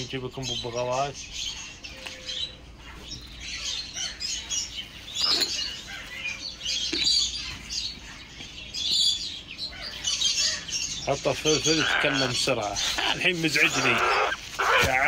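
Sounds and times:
parrots chirping: 0:00.4 - 0:15.0.

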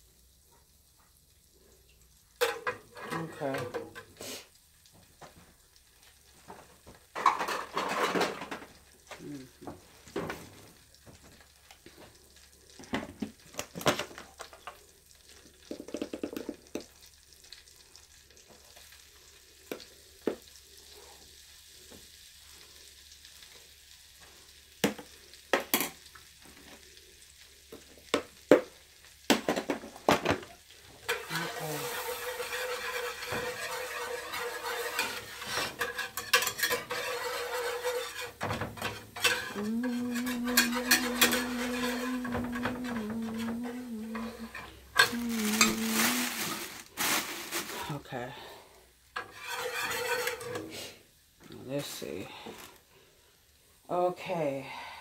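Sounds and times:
kitchen utensils and pans knocking: 0:02.4 - 0:04.1, 0:07.2 - 0:08.6, 0:31.0 - 0:45.8
wire whisk stirring in a pan: 0:31.0 - 0:48.0, 0:49.2 - 0:51.0.

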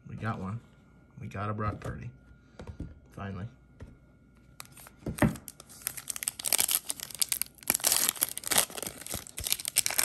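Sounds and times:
wrapper tearing and crinkling: 0:04.6 - 0:10.0.

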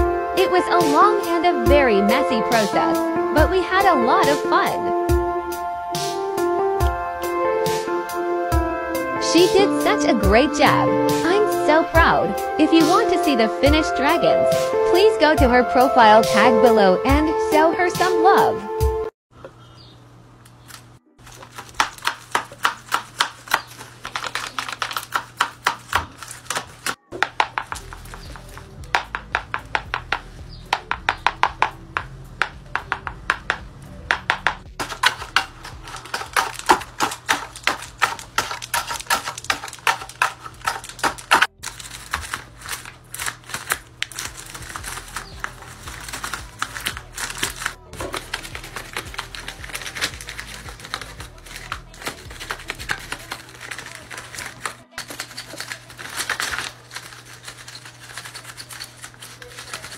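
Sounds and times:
paper puppet jaws clacking: 0:42.1 - 0:59.9.

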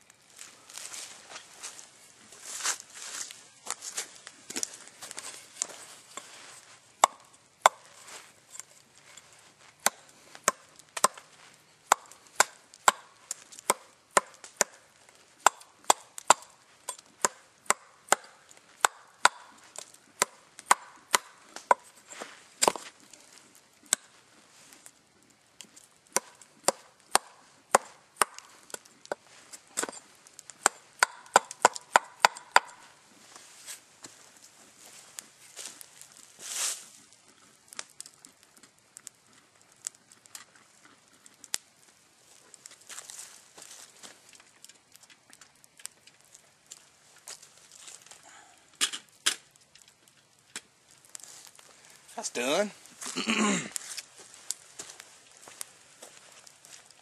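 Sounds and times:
axe chopping wood: 0:07.0 - 0:07.9, 0:09.8 - 0:11.3, 0:11.9 - 0:14.8, 0:15.4 - 0:21.9, 0:22.6 - 0:22.9, 0:26.1 - 0:29.2, 0:30.6 - 0:32.8.

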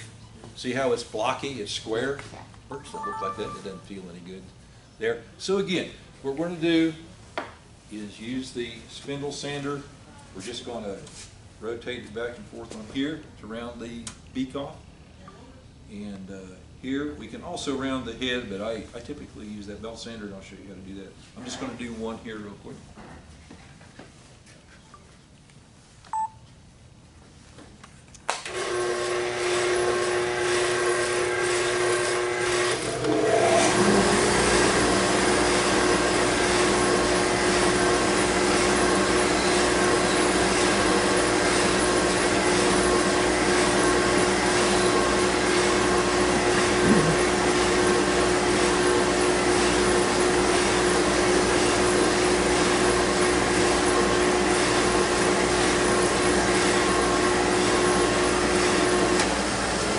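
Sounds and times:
spindle sander motor hum: 0:28.5 - 0:59.9.

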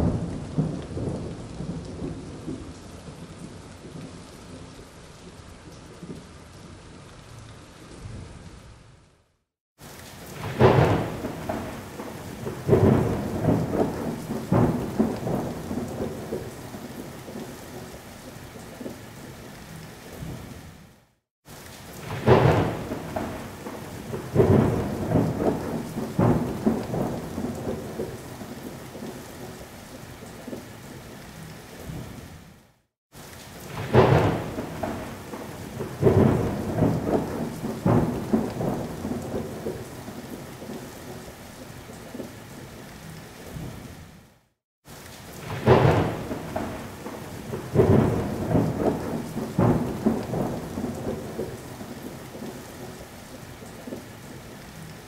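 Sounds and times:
thunder cracks and rumble: 0:00.0 - 0:04.7, 0:10.3 - 0:17.9, 0:22.0 - 0:29.1, 0:33.6 - 0:41.3, 0:45.3 - 0:53.0
heavy rain: 0:00.0 - 0:55.0.

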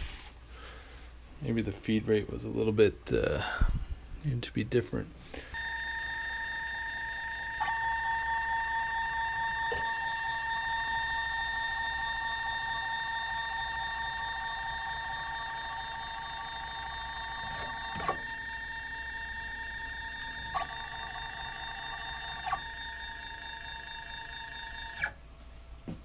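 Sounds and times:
high electrical motor whine: 0:05.5 - 0:25.2.

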